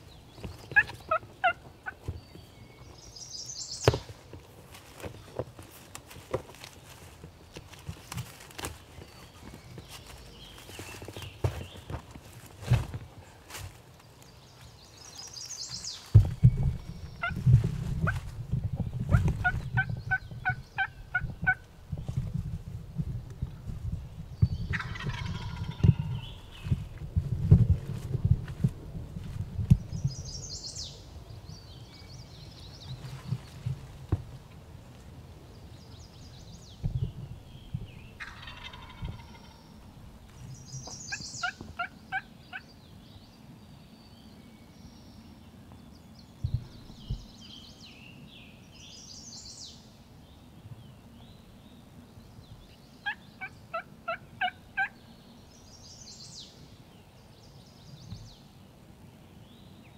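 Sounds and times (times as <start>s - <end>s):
songbirds singing: 0.0s - 22.4s, 23.2s - 28.7s, 29.4s - 34.4s, 35.2s - 59.9s
turkey calling: 0.8s - 2.0s, 24.7s - 26.2s, 38.2s - 39.6s, 53.0s - 55.0s.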